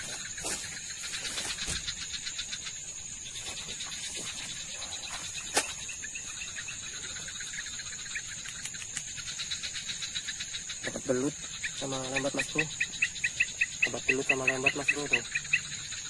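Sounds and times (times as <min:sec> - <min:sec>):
crickets chirping: 0:00.0 - 0:16.0
sharp click: 0:08.4 - 0:09.1.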